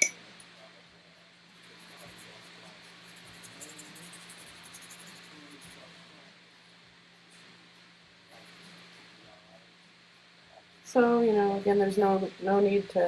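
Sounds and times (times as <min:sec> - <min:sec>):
steady low hum: 0:00.0 - 0:13.0
paintbrush scratching on paper: 0:01.5 - 0:05.9.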